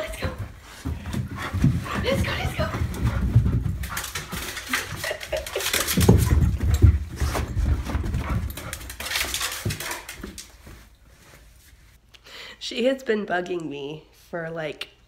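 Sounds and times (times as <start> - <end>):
footsteps thumping down carpeted stairs: 0.0 - 10.9.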